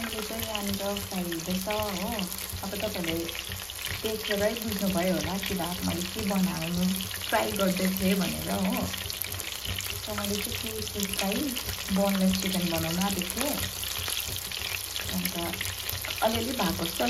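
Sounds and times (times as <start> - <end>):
person talking: 0.0 - 3.3, 4.0 - 9.0, 10.1 - 13.7, 15.1 - 15.6, 16.2 - 17.0
chicken sizzling in oil: 0.0 - 17.0.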